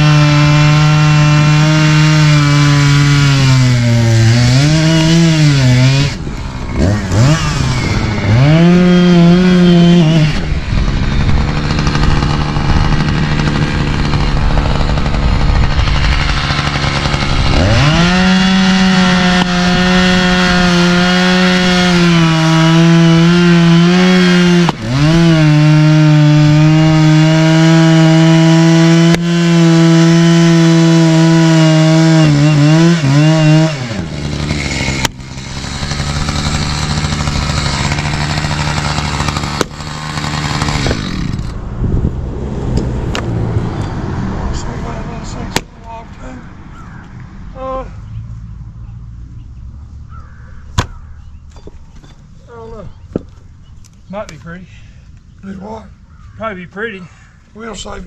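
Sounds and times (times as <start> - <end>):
chainsaw revving and cutting: 0.0 - 41.6
low slow engine: 2.2 - 23.8
splitting maul striking wood: 34.4 - 41.4, 45.5 - 45.7, 50.7 - 52.2.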